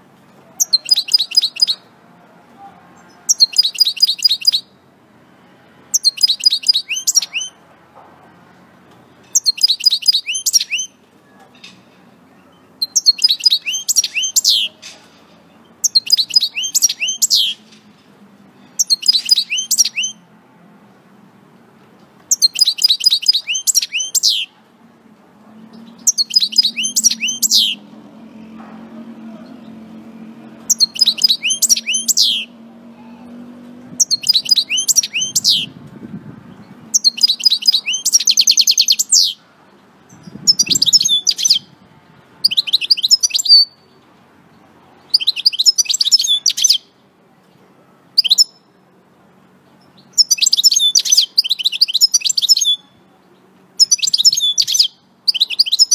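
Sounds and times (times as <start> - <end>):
goldfinch twittering song: 0.6 - 1.8, 5.9 - 7.6, 9.3 - 11.0, 12.4 - 14.8, 15.6 - 17.6, 18.6 - 20.2, 22.3 - 24.5, 25.7 - 27.9, 30.6 - 32.5, 34.0 - 35.7, 36.5 - 39.4, 49.8 - 53.0, 53.8 - 55.9.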